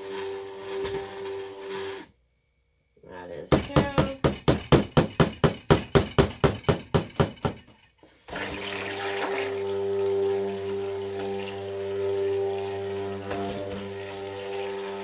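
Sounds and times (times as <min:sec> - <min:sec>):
fast sharp knocks: 0:03.5 - 0:07.6
music with long held notes: 0:08.8 - 0:15.0.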